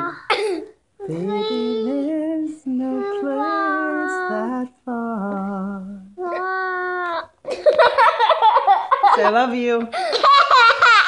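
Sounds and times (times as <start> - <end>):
high vocal cry: 1.0 - 2.2
child singing long notes: 1.0 - 7.2.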